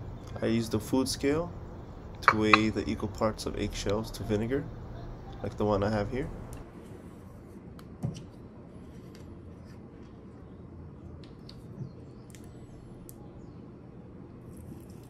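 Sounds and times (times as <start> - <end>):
low room hum: 0.0 - 15.0
bottle cap clicks and knocks: 2.2 - 2.8.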